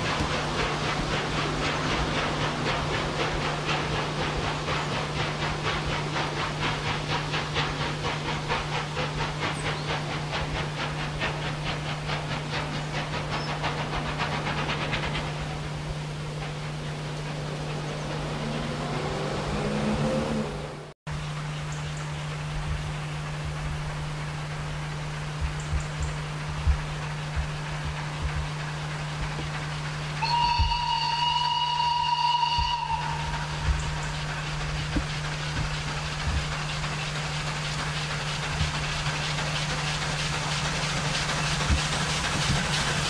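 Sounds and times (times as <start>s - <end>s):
steady steam hiss: 0.0s - 43.0s
steam locomotive exhaust beats: 0.0s - 43.0s.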